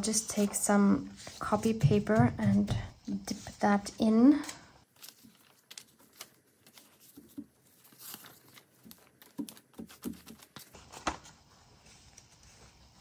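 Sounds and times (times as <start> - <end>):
paper rustling and handling: 4.4 - 13.0.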